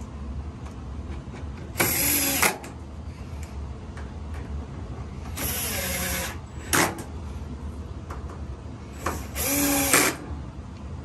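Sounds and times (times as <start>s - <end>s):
electric screwdriver driving screws: 1.8s - 2.6s, 5.3s - 6.4s, 9.1s - 10.2s.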